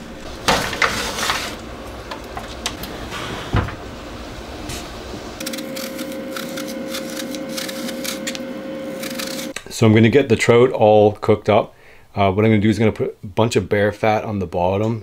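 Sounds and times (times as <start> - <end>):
pan sliding onto oven rack: 0.4 - 3.9
faint hum: 1.5 - 9.9
knife peeling an apple: 5.4 - 9.6.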